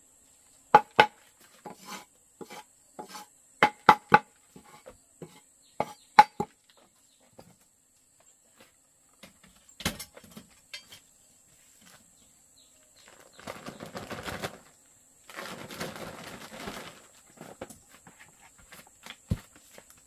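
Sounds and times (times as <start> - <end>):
chicken wings flapping: 13.1 - 14.7.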